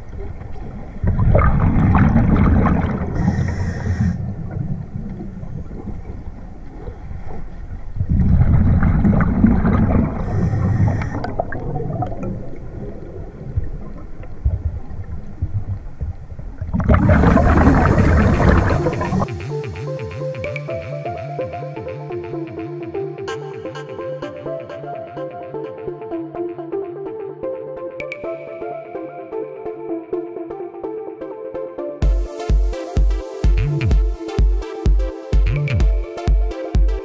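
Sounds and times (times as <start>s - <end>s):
quiet low rumble: 0.0s - 19.3s
underwater bubbles gurgling: 0.0s - 19.6s.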